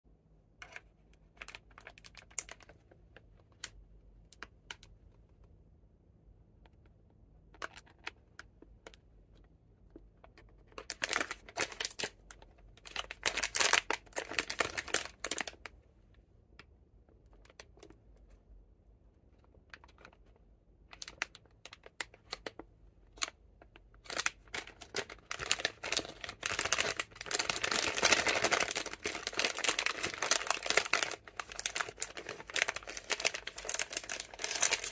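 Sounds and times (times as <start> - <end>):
plastic wrapper crinkling: 1.4 - 2.8, 10.6 - 15.7, 20.9 - 34.9.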